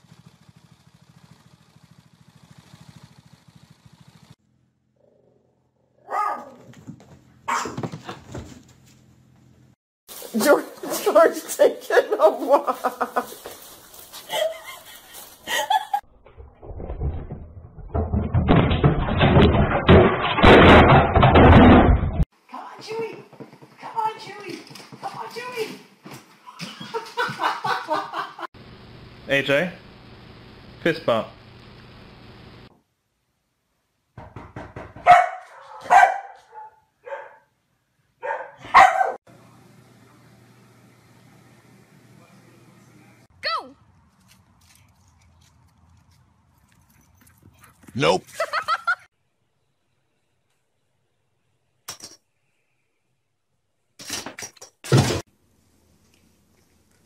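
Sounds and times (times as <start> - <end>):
dog barking: 6.0 - 6.7, 7.4 - 8.0, 35.0 - 37.5, 38.2 - 39.2
tv crashing onto stand: 17.0 - 22.2.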